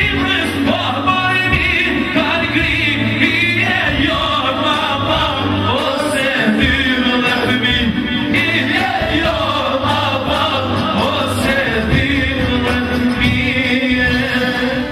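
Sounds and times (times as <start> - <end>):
amplified instrumental accompaniment: 0.0 - 14.9
man singing into a microphone: 0.0 - 14.9
pulsing bass beat: 0.0 - 14.9.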